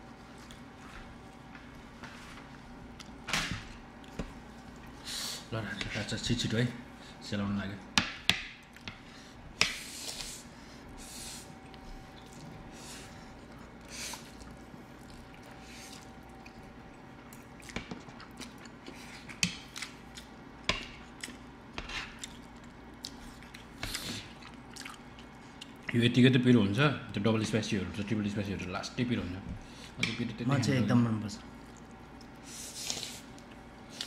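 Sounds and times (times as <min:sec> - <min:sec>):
wet chewing: 0:13.3 - 0:20.4, 0:21.0 - 0:25.9.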